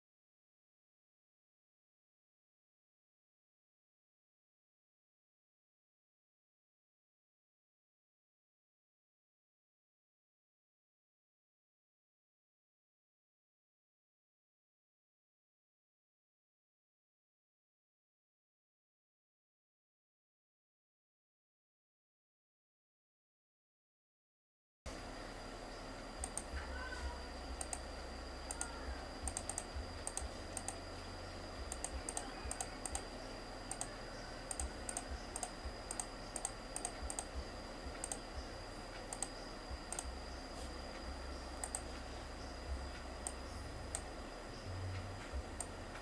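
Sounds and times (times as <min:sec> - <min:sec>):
faint high-pitched tone: 0:24.9 - 0:45.9
steady low hum: 0:24.9 - 0:46.0
computer keyboard typing: 0:26.2 - 0:26.5, 0:27.6 - 0:27.9, 0:28.5 - 0:30.8, 0:31.7 - 0:38.3, 0:39.0 - 0:40.1, 0:41.6 - 0:42.0.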